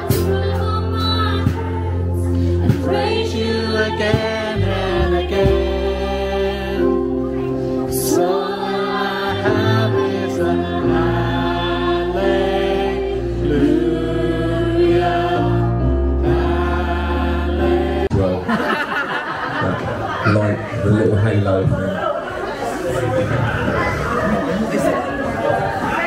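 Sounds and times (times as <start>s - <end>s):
song with sung vocals: 0.0s - 18.3s
held bass notes: 0.0s - 18.5s.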